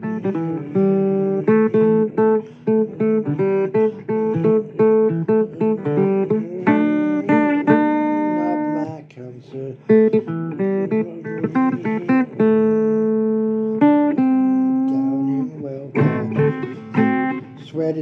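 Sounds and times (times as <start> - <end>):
blues guitar playing: 0.0 - 18.0.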